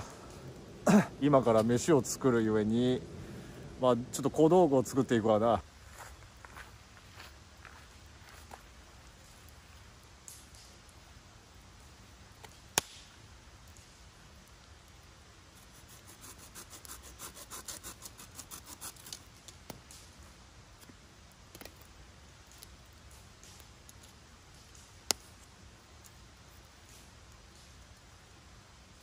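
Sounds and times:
dry stick scraping and rubbing: 15.6s - 20.0s.

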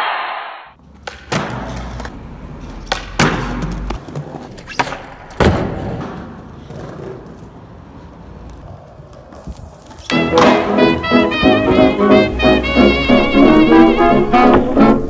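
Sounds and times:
skateboard cracks and knocks: 0.8s - 11.0s
skateboard wheels rolling on stone: 0.8s - 13.9s.

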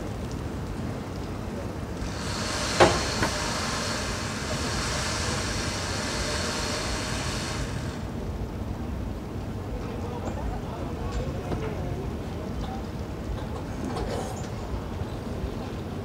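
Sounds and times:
steady hiss: 1.5s - 8.8s.

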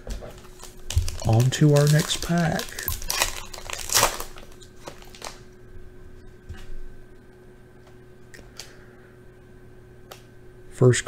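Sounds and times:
wrapper crinkling and ripping: 0.2s - 5.6s.

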